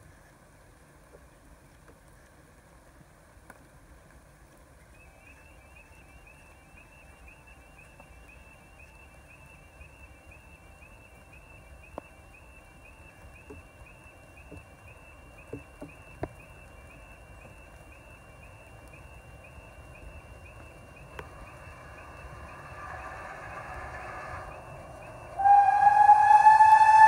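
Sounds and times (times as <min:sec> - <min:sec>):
faint high chirps: 0:04.8 - 0:26.8
faint low rush: 0:16.6 - 0:27.0.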